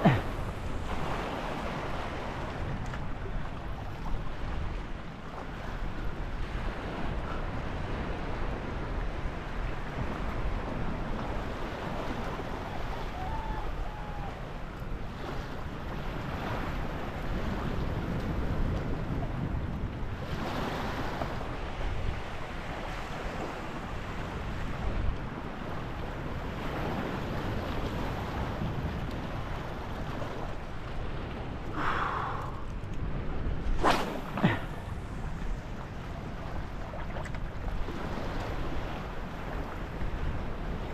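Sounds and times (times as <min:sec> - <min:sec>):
wind buffeting microphone: 0:00.0 - 0:40.9
water lapping: 0:29.2 - 0:40.9.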